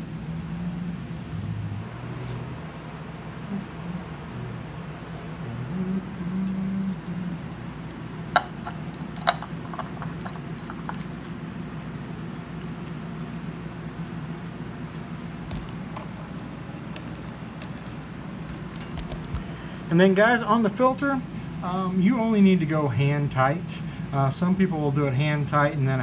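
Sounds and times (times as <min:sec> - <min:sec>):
steady low hum: 0:00.0 - 0:26.0
scratchy handling noises: 0:06.8 - 0:19.9.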